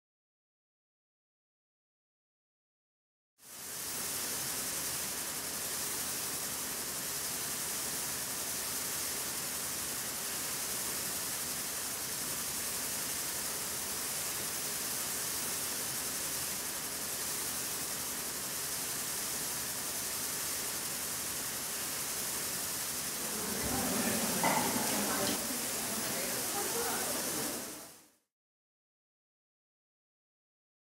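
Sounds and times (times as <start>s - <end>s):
steady hiss of noise: 3.4s - 28.2s.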